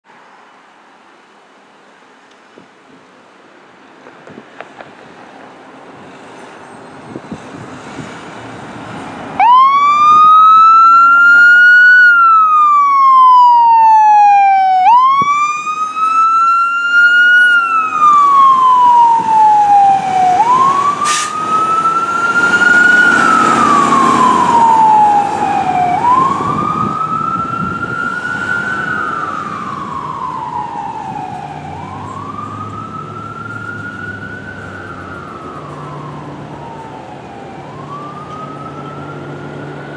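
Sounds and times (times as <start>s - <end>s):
fire engine siren wailing: 6.4s - 39.9s.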